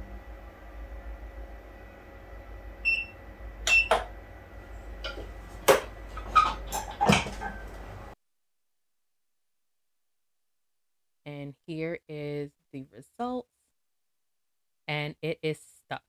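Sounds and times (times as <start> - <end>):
plastic and metal clunks: 5.1 - 7.6.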